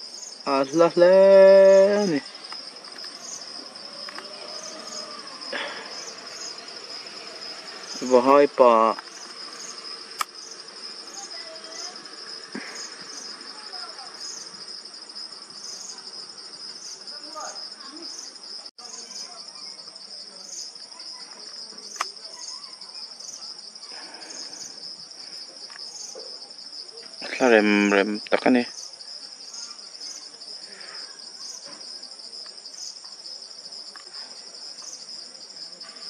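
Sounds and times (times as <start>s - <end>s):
insects chirring: 0.0s - 36.0s
sharp click: 10.2s - 10.4s.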